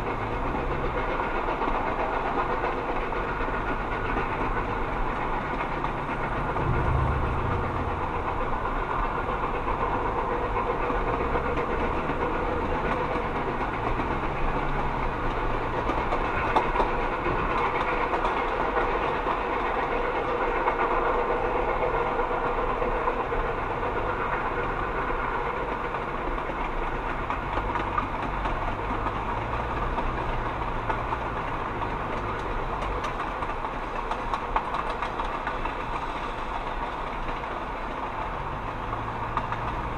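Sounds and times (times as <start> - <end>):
train coaches rolling on rails: 0.0 - 39.9
car road noise: 3.2 - 16.5, 38.3 - 39.9.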